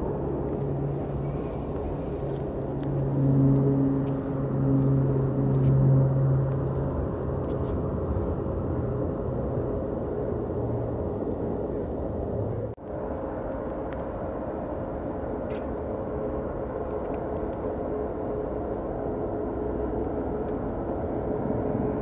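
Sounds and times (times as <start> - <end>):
jet engines rumbling: 0.0 - 22.0.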